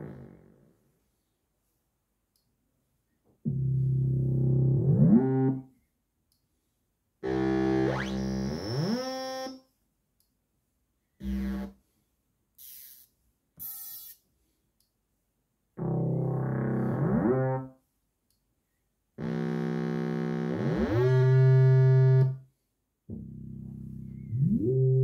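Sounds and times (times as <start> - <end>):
synthesizer bass notes: 3.5 - 5.7, 7.2 - 9.4, 11.2 - 11.7, 15.8 - 17.7, 19.2 - 22.4, 23.1 - 25.0.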